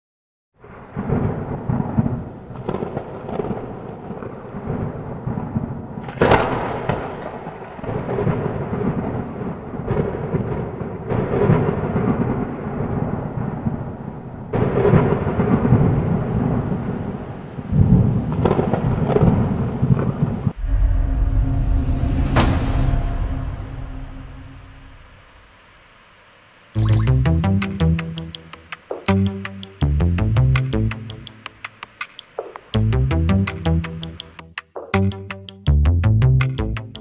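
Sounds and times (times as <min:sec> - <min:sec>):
thunder rumbling: 0:00.6 - 0:26.1
sharp thunder crack: 0:00.7 - 0:16.9, 0:17.8 - 0:26.0.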